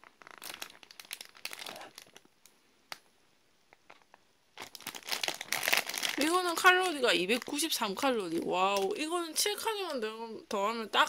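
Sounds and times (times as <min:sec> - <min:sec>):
plastic bread wrapper crinkling: 0:00.0 - 0:02.5, 0:03.6 - 0:09.1.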